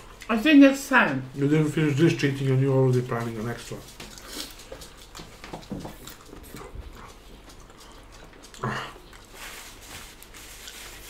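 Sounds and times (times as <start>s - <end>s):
clicks of eating off plates: 2.7s - 9.4s.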